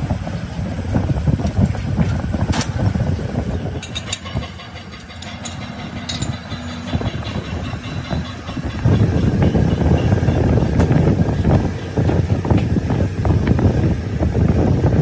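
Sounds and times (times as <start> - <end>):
sharp metal clicks: 3.8 - 11.0.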